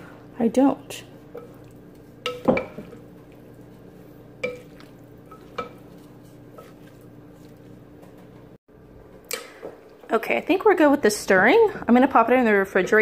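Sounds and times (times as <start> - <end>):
wooden spoon stirring food: 1.0 - 8.6.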